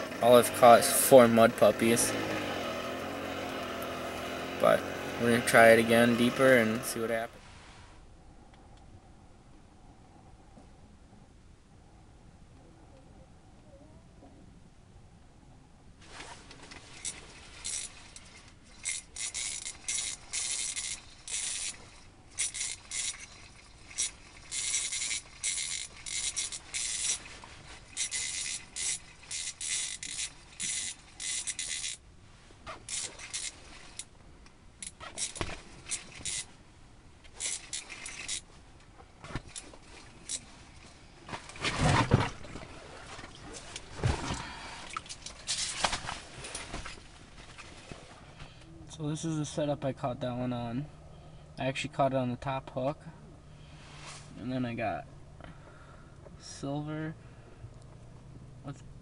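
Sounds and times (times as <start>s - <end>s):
fishing reel scraping: 0.0s - 7.2s, 16.4s - 32.0s, 32.7s - 34.1s, 34.8s - 36.6s, 37.3s - 38.5s, 39.4s - 41.0s.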